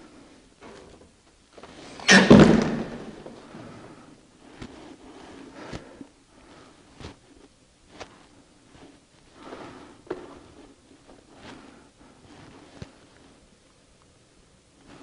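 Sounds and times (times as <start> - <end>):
man breathing heavily: 3.4 - 13.4.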